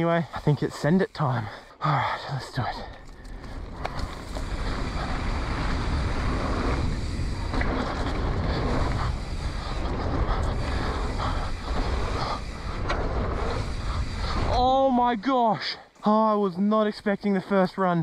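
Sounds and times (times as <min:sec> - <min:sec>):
bike tyres on dirt: 0:00.0 - 0:18.0
wind buffeting microphone: 0:03.0 - 0:15.2.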